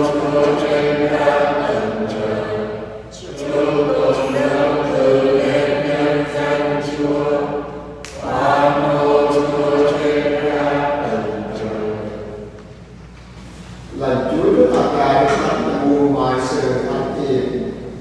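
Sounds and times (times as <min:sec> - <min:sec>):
choir singing unaccompanied: 0:00.0 - 0:12.6.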